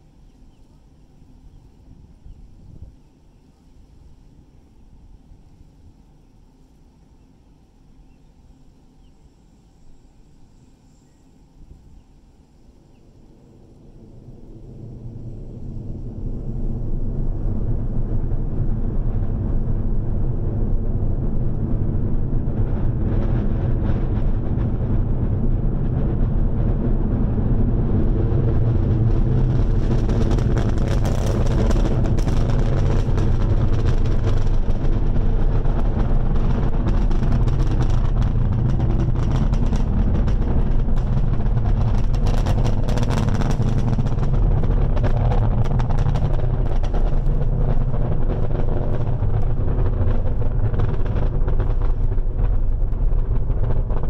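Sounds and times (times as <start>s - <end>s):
deep rocket engine rumble: 0.0s - 54.0s
sharp crackle: 16.6s - 54.0s.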